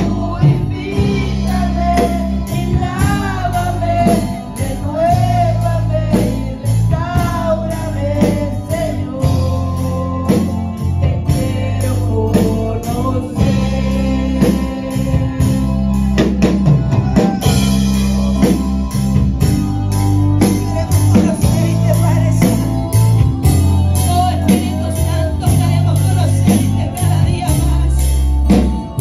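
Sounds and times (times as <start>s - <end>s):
woman singing into microphone: 0.0s - 10.5s, 24.0s - 28.7s
bass guitar: 0.0s - 29.0s
drum kit beat: 0.0s - 29.0s
electric guitar: 0.0s - 29.0s
keyboard: 0.0s - 29.0s.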